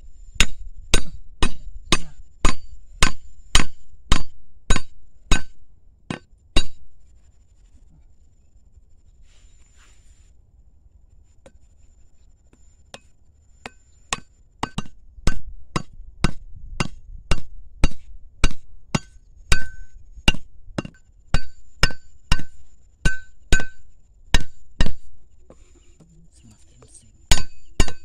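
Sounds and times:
machete knocking wooden stake: 27.3s - 28.0s.

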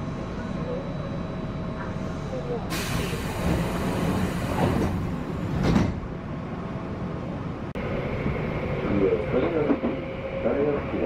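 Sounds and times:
train running with steady hum: 0.0s - 11.0s
train doors hissing and thudding shut: 2.7s - 6.0s.

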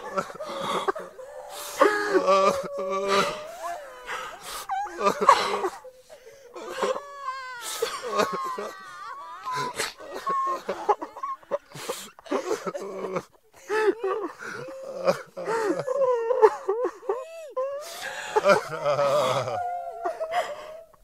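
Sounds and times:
noisy breaths: 0.0s - 7.0s
people sobbing and wailing: 0.0s - 21.0s.

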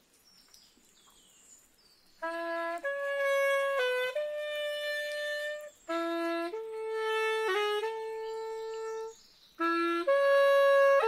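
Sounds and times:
slow wind instrument melody: 2.2s - 11.0s.

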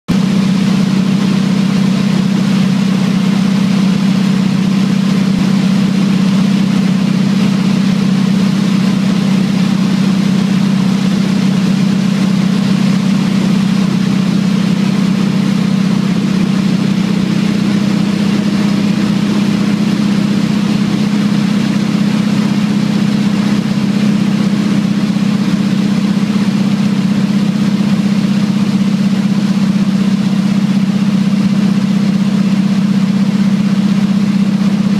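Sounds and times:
propeller aircraft engine droning: 0.1s - 34.9s.

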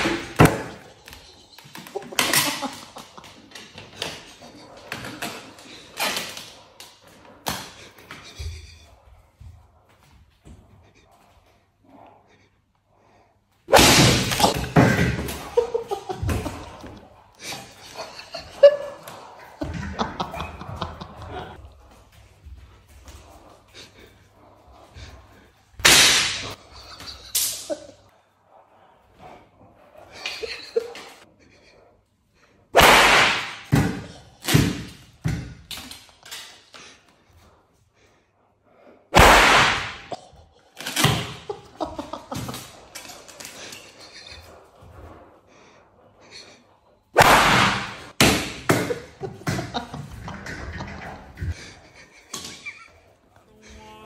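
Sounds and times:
whip cracks: 13.7s - 15.5s, 25.8s - 26.6s, 32.8s - 33.8s, 39.2s - 40.1s, 47.2s - 48.6s
stick smacking: 32.8s - 36.0s.

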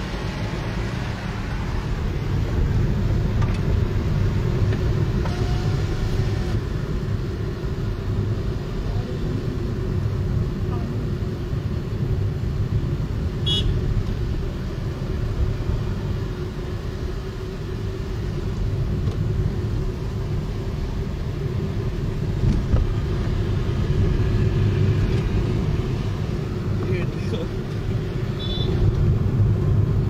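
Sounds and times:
car engine and tyres rumbling: 0.0s - 30.0s.

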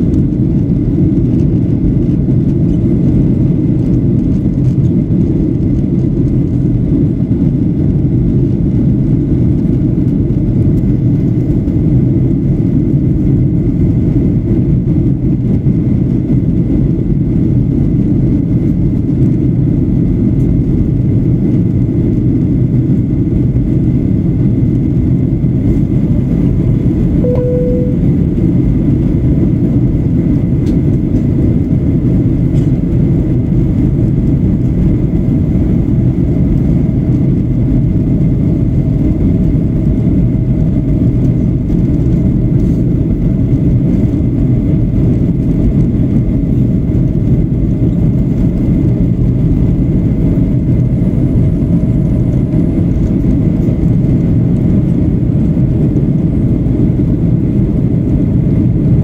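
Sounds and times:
jet engine cabin rumble: 0.0s - 59.0s
brief single tone: 27.2s - 28.4s
faint thin whine: 27.2s - 28.4s.

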